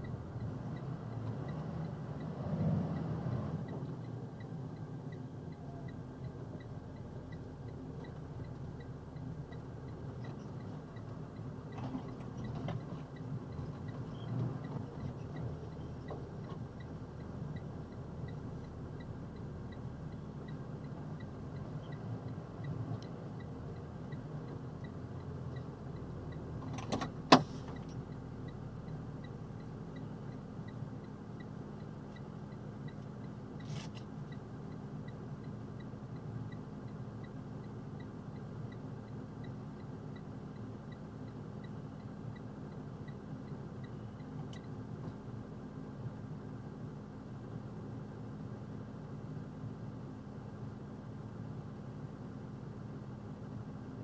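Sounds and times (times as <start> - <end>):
truck engine idling: 3.4 - 46.0.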